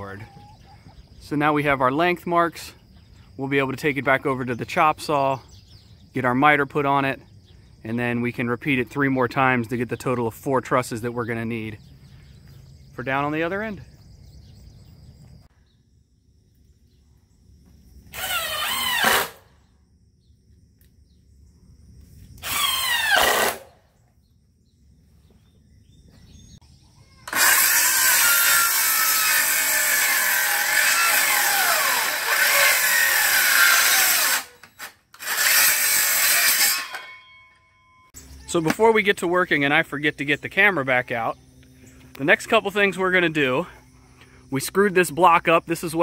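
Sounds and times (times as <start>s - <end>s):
circular saw cutting wood: 22.4s - 23.7s, 27.3s - 37.3s.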